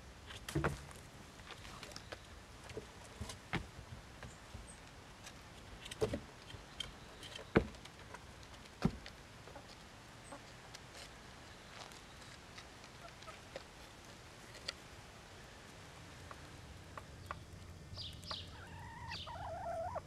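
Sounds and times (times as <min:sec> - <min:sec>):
hens pecking on wood: 0:00.3 - 0:15.0, 0:15.6 - 0:20.0
hens clucking: 0:13.0 - 0:13.8, 0:16.2 - 0:20.0.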